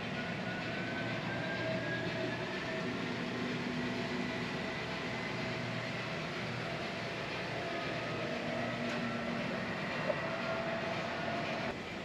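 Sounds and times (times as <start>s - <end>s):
faint motor whine: 0.0s - 12.0s
model train rolling rumble: 0.0s - 12.0s.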